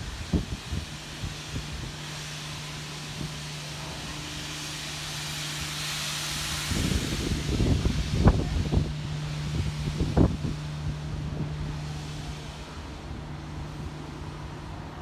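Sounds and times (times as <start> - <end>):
wind gusts on microphone: 0.0 - 2.2, 6.4 - 15.0
low hum: 0.0 - 15.0
steam hissing: 0.0 - 15.0.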